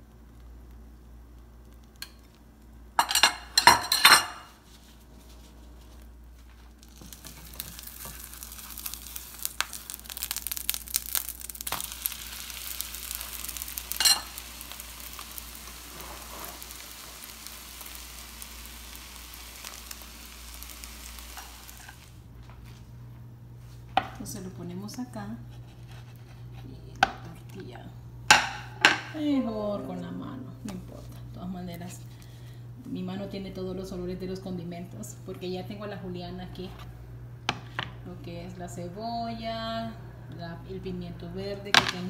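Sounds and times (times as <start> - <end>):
cookware clattering: 3.0 - 4.5
food sizzling in a frying pan: 6.4 - 22.3.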